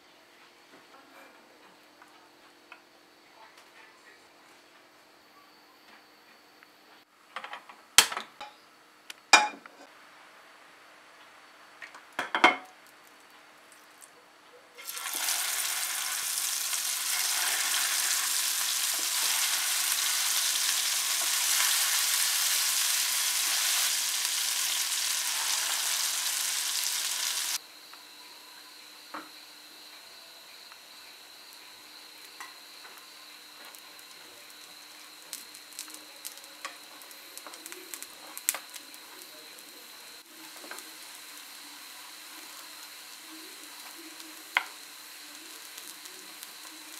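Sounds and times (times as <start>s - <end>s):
patties sizzling in hot oil: 14.8s - 27.6s, 32.2s - 46.9s.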